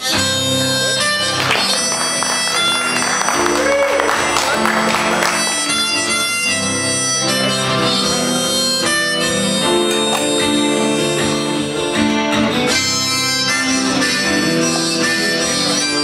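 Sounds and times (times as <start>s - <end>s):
harmonica playing: 0.0s - 16.0s
strummed acoustic guitar: 4.6s - 16.0s.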